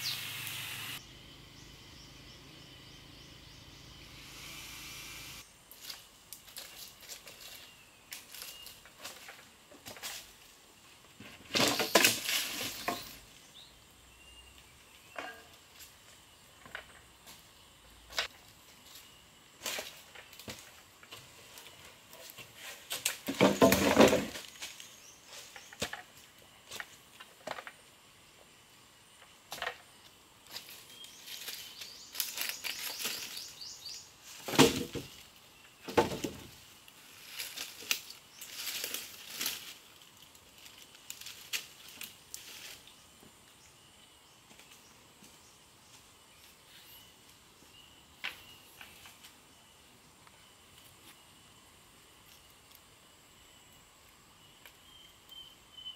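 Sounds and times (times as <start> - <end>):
twigs and leaves rustling: 5.6 - 13.7, 14.6 - 28.0, 29.5 - 43.5, 48.2 - 49.5
wood clattering on wood: 23.2 - 24.4.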